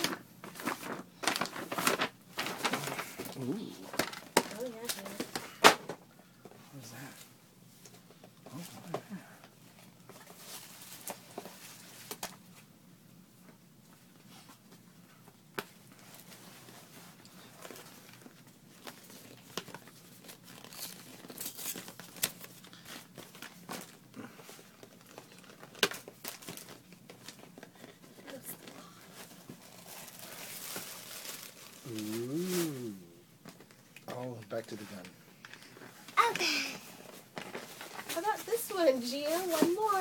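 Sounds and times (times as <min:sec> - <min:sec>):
paper tearing and crumpling: 0:00.0 - 0:05.6, 0:17.5 - 0:27.4, 0:28.2 - 0:33.0, 0:36.2 - 0:40.0.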